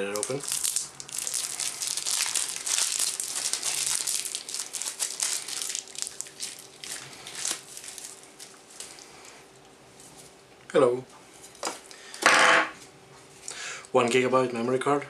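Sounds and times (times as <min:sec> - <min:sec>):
plastic bag crinkling: 0:00.0 - 0:09.4.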